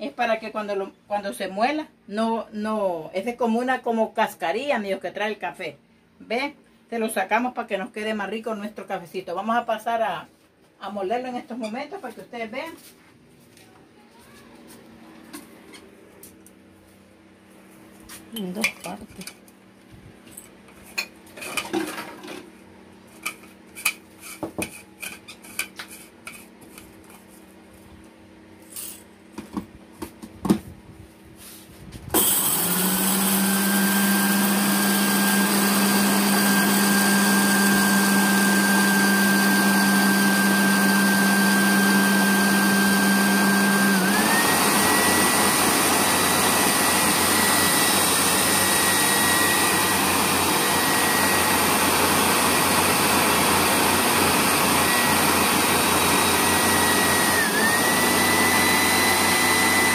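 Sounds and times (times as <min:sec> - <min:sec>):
blender motor whining: 0:32.1 - 0:59.9.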